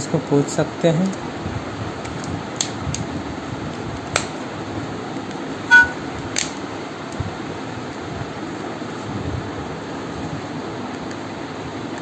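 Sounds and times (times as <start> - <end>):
steady background hum: 0.0 - 12.0
high-pitched tone: 5.7 - 6.0.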